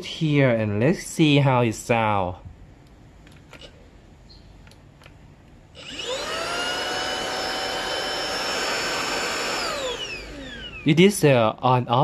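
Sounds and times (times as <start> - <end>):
faint handling clicks: 4.6 - 5.6
handheld vacuum motor whining: 5.8 - 10.9.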